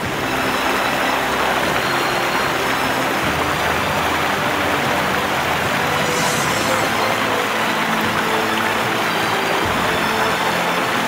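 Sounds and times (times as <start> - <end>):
waterfall rushing: 0.0 - 11.0.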